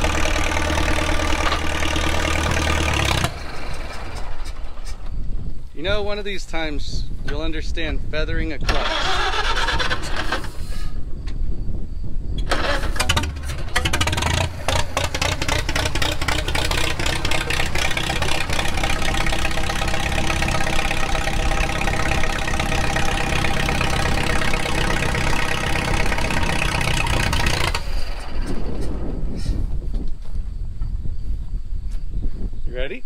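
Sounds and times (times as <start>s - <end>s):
tractor engine running: 0.0s - 6.6s, 8.6s - 10.7s, 12.4s - 29.9s.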